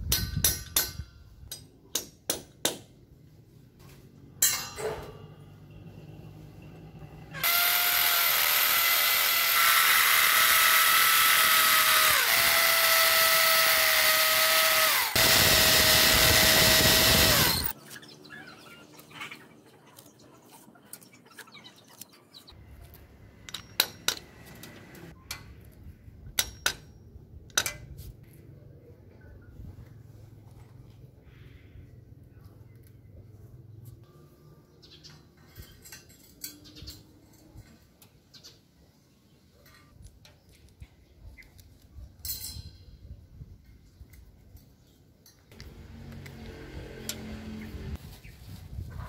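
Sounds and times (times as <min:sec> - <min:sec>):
power drill whining: 0:07.4 - 0:17.7.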